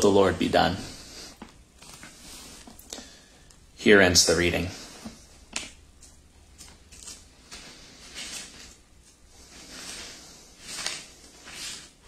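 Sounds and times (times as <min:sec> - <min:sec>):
book pages turning: 0:05.0 - 0:09.2, 0:09.8 - 0:12.0.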